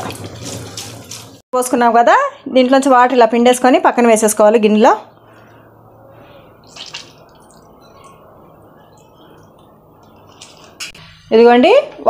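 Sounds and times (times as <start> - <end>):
water dripping: 6.6 - 11.0.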